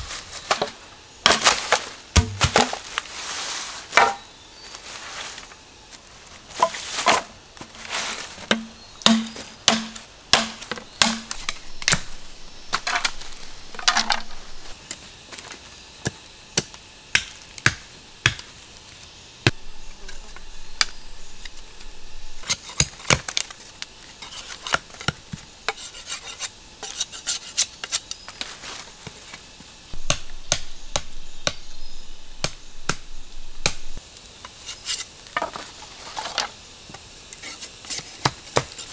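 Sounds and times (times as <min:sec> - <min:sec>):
machete chopping bamboo: 0:02.2 - 0:02.8, 0:04.0 - 0:04.2, 0:08.5 - 0:12.1, 0:16.0 - 0:18.5, 0:22.4 - 0:23.5, 0:30.0 - 0:31.7, 0:32.4 - 0:33.9, 0:38.0 - 0:38.9.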